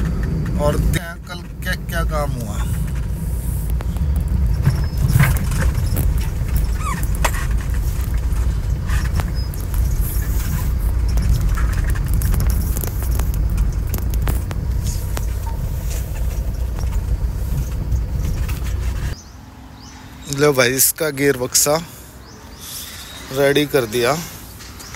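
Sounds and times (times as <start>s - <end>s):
car cabin low rumble: 0.0s - 19.2s.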